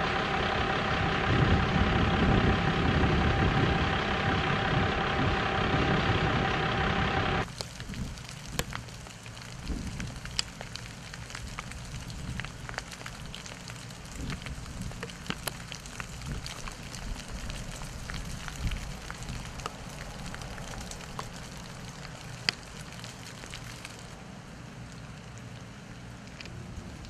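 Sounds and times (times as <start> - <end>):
low steady rumble: 0.0 - 27.0
ice drops pattering on leaves: 7.4 - 27.0.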